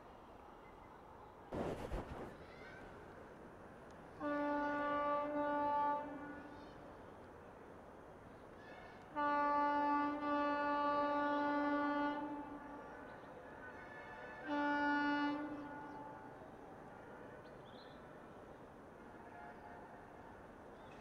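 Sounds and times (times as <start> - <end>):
locomotive horn blasts: 4.2 - 6.4, 9.2 - 12.6, 14.1 - 16.2.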